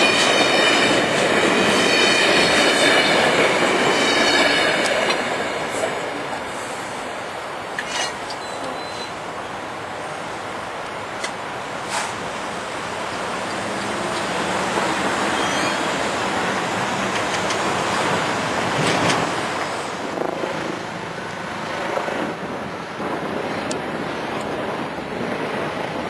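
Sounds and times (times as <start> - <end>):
train rumbling past: 0.0 - 26.0
wheels clicking on rail: 10.8 - 19.7
wind on microphone: 16.4 - 26.0.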